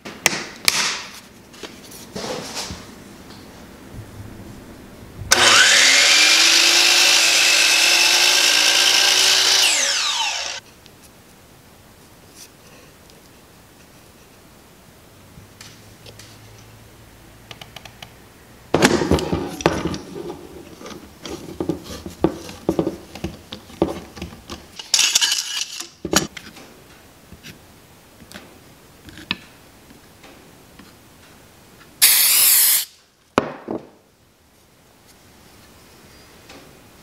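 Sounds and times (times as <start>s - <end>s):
aerosol can hissing: 32.0s - 32.9s.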